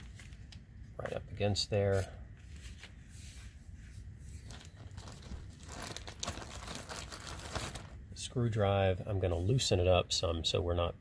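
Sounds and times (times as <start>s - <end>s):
plastic bag rustling: 0.0s - 0.6s, 2.4s - 8.0s.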